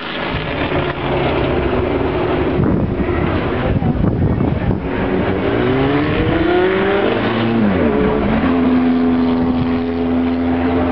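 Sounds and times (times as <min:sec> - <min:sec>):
racing car engine revving: 0:04.6 - 0:10.9.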